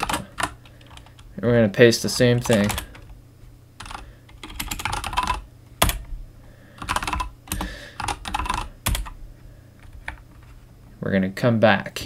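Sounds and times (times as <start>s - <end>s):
typing on computer keyboard: 0.0s - 1.2s, 2.3s - 3.1s, 3.8s - 6.0s, 6.8s - 9.2s.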